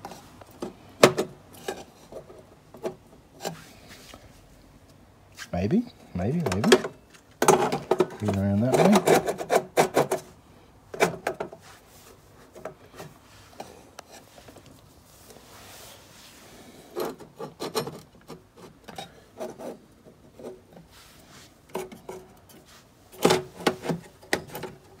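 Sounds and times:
modules scraping on metal box: 6.5s - 10.3s, 16.8s - 20.7s.

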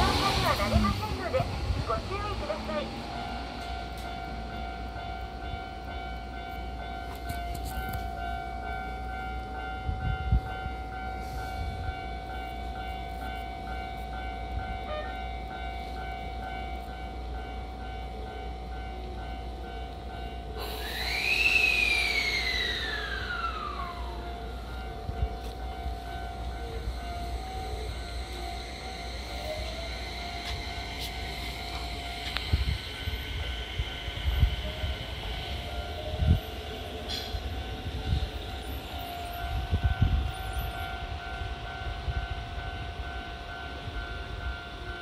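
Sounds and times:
train electrical whine and hum: 0.0s - 45.0s
whining tone falling in pitch: 20.8s - 40.9s.

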